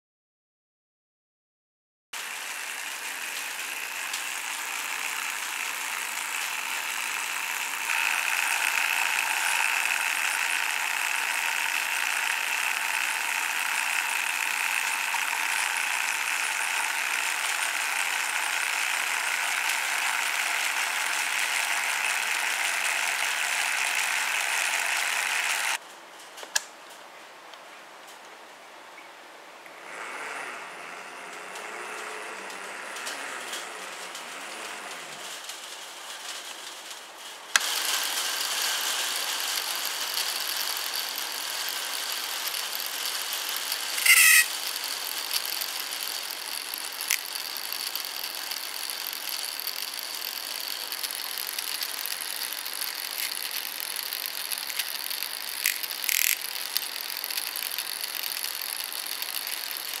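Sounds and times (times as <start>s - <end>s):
model tram motor whirring: 2.2s - 25.8s, 29.7s - 60.0s
loud scraping burst: 37.6s - 60.0s.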